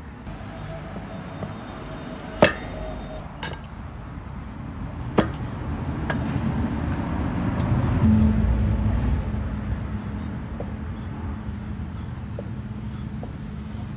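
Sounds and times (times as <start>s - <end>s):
low background rumble: 6.4s - 13.9s.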